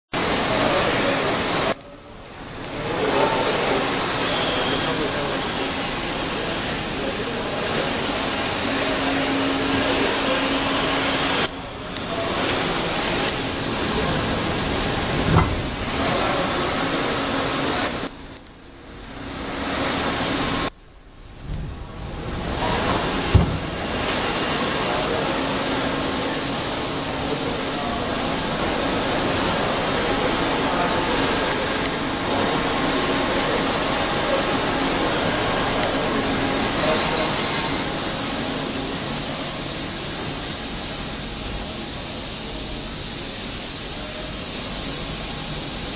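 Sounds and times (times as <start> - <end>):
loud steady hiss: 0.2 - 45.9
low hum: 20.5 - 24.1.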